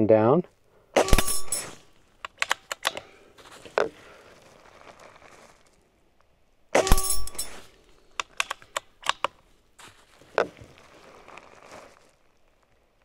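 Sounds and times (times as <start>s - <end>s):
air rifle shot: 1.0s - 1.6s
pellet hitting steel target: 1.0s - 1.8s, 6.8s - 7.5s
rifle bolt clicks: 2.2s - 3.1s, 8.2s - 9.4s.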